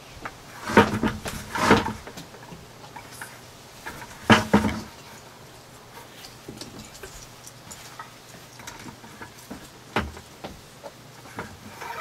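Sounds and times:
wire scraping plastic bucket: 0:00.5 - 0:05.3, 0:11.2 - 0:12.0.

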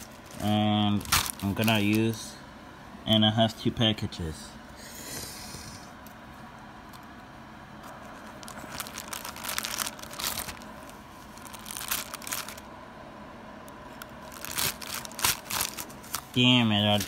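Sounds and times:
plastic bag crinkling: 0:00.0 - 0:02.2, 0:07.8 - 0:12.7, 0:14.0 - 0:17.0.

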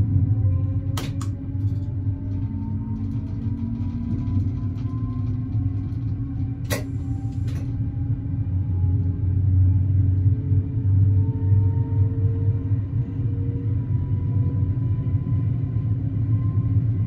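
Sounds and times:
railcar engine rumble: 0:00.0 - 0:17.0.

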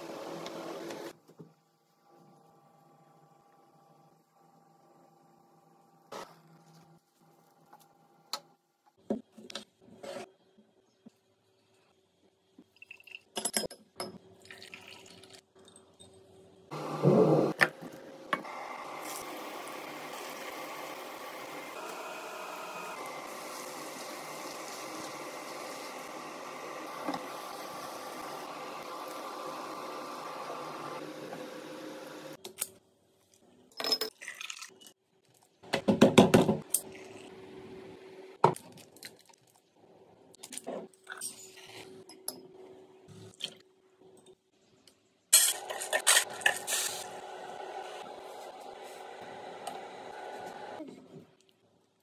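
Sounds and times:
onions sizzling in oil: 0:18.5 - 0:31.0.

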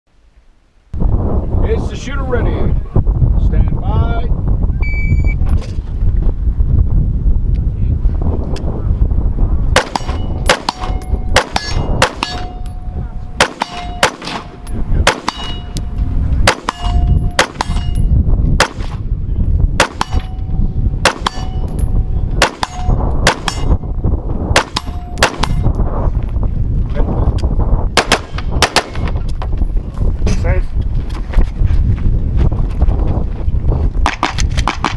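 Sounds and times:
rifle shots: 0:09.8 - 0:12.6, 0:13.4 - 0:15.7, 0:16.4 - 0:18.0, 0:18.6 - 0:19.0, 0:19.8 - 0:20.3, 0:21.0 - 0:21.6, 0:22.4 - 0:23.7, 0:24.5 - 0:25.6, 0:28.0 - 0:29.2
metallic ring of steel targets: 0:09.9 - 0:18.2, 0:19.9 - 0:23.9, 0:24.6 - 0:25.8.

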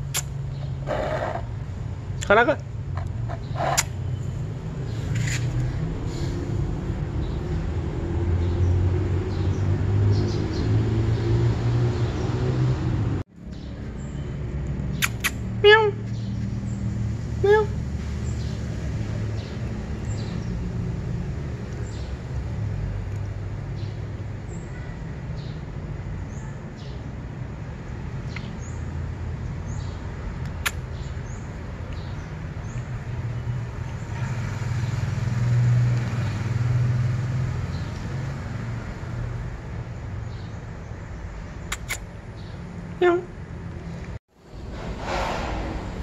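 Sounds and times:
vehicle passing: 0:00.0 - 0:23.7, 0:33.2 - 0:40.2, 0:42.6 - 0:46.0
road traffic rumble: 0:00.0 - 0:46.0
sharp click: 0:00.1 - 0:00.3, 0:15.0 - 0:15.4, 0:41.7 - 0:42.1.

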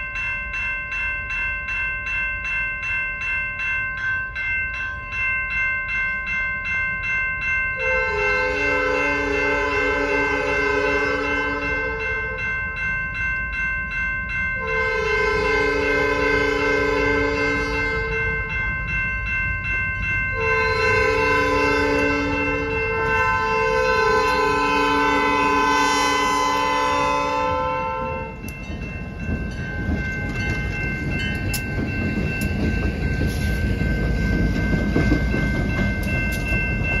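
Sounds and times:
crossing bell ringing: 0:00.0 - 0:37.0
locomotive air horn blasts: 0:07.8 - 0:12.4, 0:14.6 - 0:18.4, 0:20.4 - 0:28.4
locomotive rumbling past: 0:19.6 - 0:37.0.

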